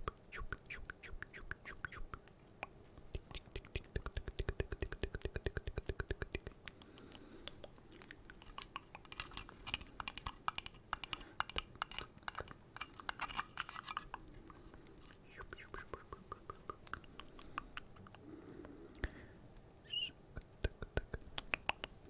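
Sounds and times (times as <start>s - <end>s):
crackly scratching: 1.9s - 18.9s
rapid tapping on vinyl figure: 3.0s - 14.8s
handling clicks and taps: 8.3s - 15.2s.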